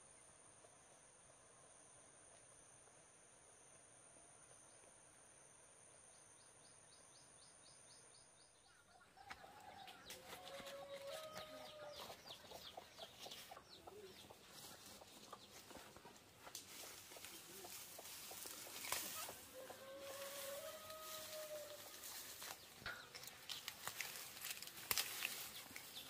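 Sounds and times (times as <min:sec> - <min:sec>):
insects droning and chirping: 0:00.0 - 0:26.0
chickens clucking: 0:09.0 - 0:23.4.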